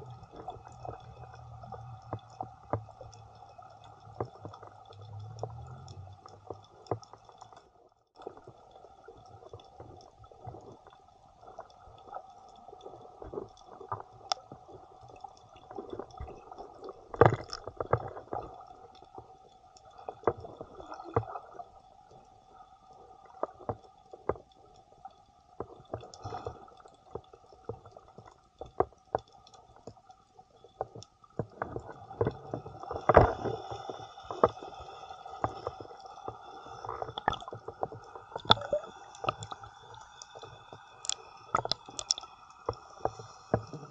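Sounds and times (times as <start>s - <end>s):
small underwater clicks and crackles: 0.0s - 43.9s
muffled underwater hiss: 32.4s - 43.9s.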